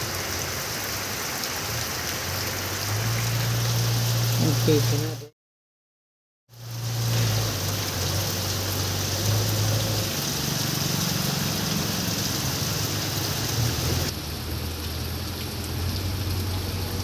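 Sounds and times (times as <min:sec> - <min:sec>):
heavy rain on a road: 0:00.0 - 0:05.3, 0:06.5 - 0:17.0
car engine hum: 0:06.6 - 0:17.0.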